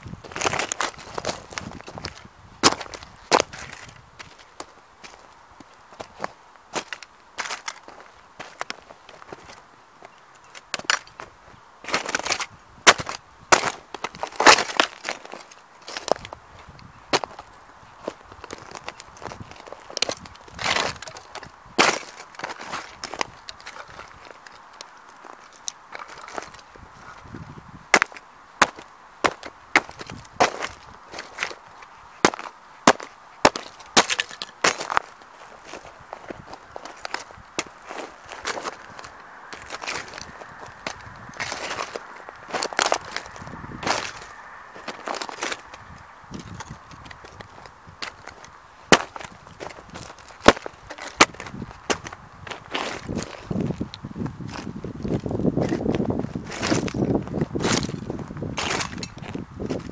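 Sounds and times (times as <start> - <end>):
crunching grit: 0.0 - 9.6, 10.5 - 59.9
metal toy cracking underfoot: 0.2 - 9.6, 10.4 - 11.3, 18.0 - 26.7, 27.9 - 59.9.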